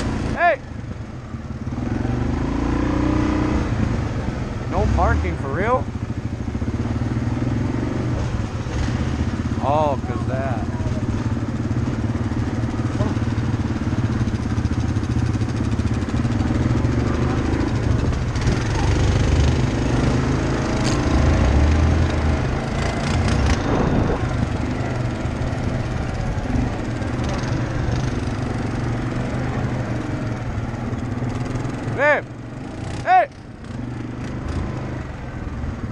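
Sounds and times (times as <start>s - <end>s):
off-road vehicle engine: 0.0s - 35.9s
wind noise: 23.1s - 25.0s.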